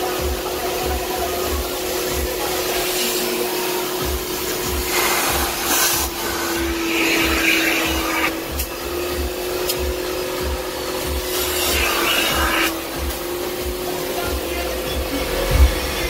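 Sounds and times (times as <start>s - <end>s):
vacuum motor whining: 0.0s - 16.0s
suction hiss over fabric: 1.2s - 8.9s, 11.0s - 13.2s.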